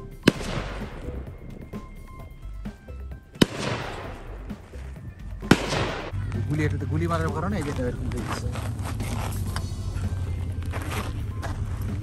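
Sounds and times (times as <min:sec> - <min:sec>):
background music: 0:00.0 - 0:12.0
gunshots ringing out: 0:00.1 - 0:02.3, 0:03.3 - 0:04.8, 0:05.4 - 0:06.2.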